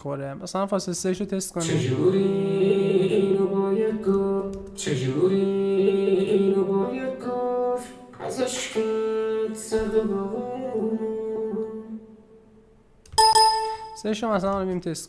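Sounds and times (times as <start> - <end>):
pop vocal singing: 1.3 - 12.4
harmony voice: 1.4 - 12.4.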